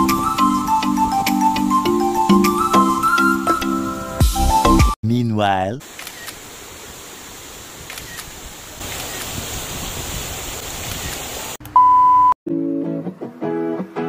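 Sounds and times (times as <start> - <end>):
waterfall rushing: 6.1 - 11.6.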